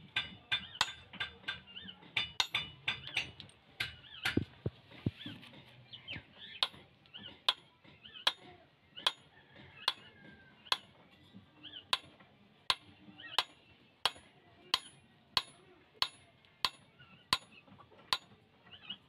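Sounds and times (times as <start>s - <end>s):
hammer tapping nail into metal: 2.2s - 4.5s.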